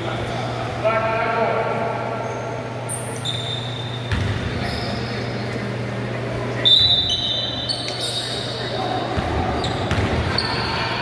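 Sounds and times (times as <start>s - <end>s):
sneaker squeaks on court: 2.2s - 5.3s, 6.7s - 10.9s
basketball thud: 4.1s - 4.5s, 9.2s - 10.2s.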